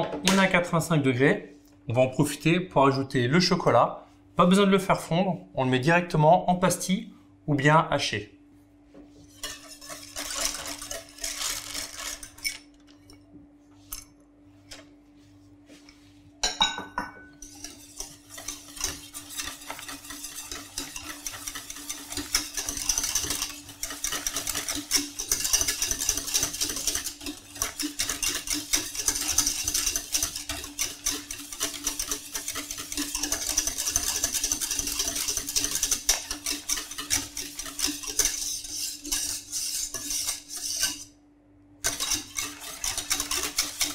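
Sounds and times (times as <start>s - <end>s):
whisk scraping metal saucepan: 9.2s - 13.2s, 17.3s - 41.2s, 41.8s - 43.9s.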